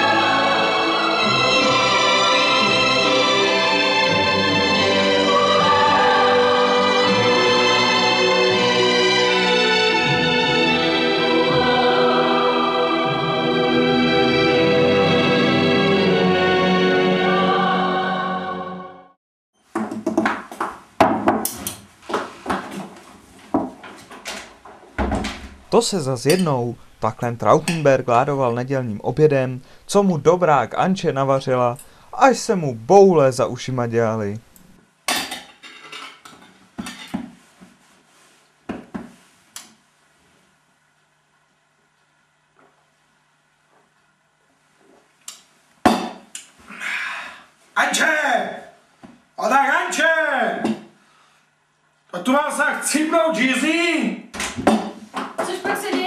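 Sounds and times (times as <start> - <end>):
held music chords: 0.0 - 19.1
cutlery knocking on plate: 54.6 - 55.0.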